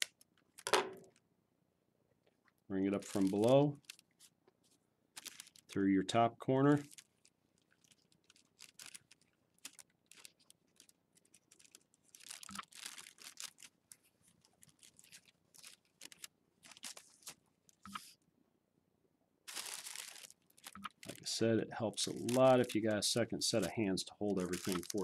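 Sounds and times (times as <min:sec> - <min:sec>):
tissue paper rustling: 0:03.0 - 0:05.7, 0:06.8 - 0:18.1, 0:19.5 - 0:21.3, 0:22.0 - 0:25.0.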